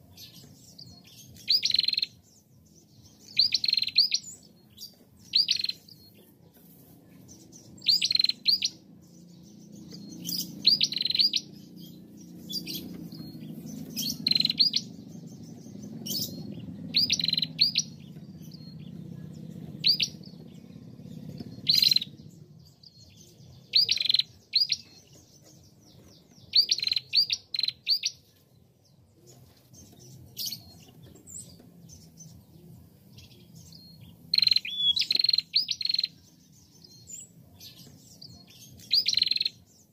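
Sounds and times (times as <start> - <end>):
bird chirping: 0.0 - 39.9
faint low rumble: 8.6 - 26.6.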